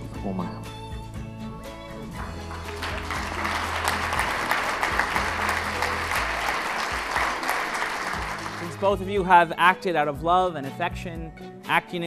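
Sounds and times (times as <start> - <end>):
soft background music: 0.0 - 12.0
crowd applauding: 2.1 - 9.3.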